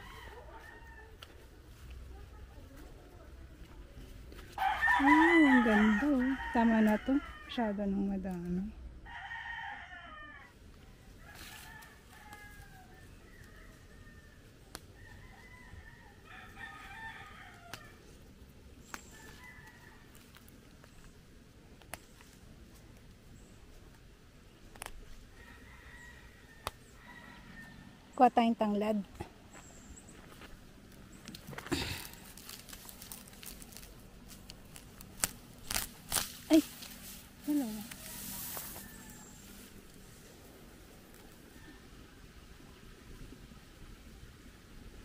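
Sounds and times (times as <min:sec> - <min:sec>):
rooster crowing: 0:00.0 - 0:01.3, 0:04.6 - 0:07.7, 0:09.0 - 0:10.6, 0:11.2 - 0:18.0, 0:19.1 - 0:20.4, 0:25.3 - 0:28.0, 0:37.8 - 0:39.8
dry leaves rustling and crackling: 0:10.7 - 0:15.4, 0:16.2 - 0:26.8, 0:30.1 - 0:41.6
stalks snapping: 0:17.6 - 0:17.9, 0:21.8 - 0:22.4, 0:24.7 - 0:25.0, 0:26.6 - 0:26.8, 0:31.2 - 0:37.0.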